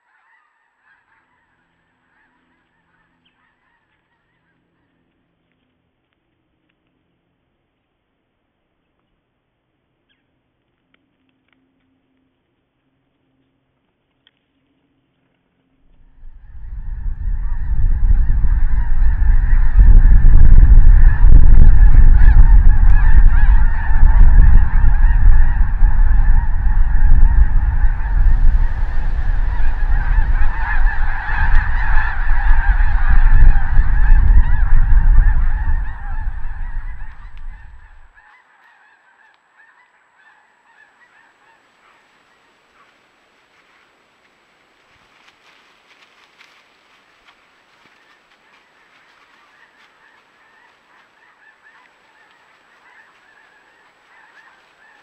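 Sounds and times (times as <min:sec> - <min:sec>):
heavy low rumble: 0:15.9 - 0:38.1
geese honking: 0:16.4 - 0:43.0, 0:47.2 - 0:55.0.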